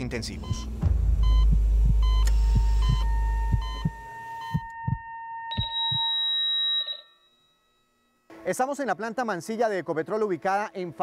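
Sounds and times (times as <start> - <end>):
deep drone: 0.0 - 5.0
heartbeat thumps: 0.3 - 6.1
heart monitor beeps: 0.4 - 7.1
flatline tone: 0.4 - 8.3.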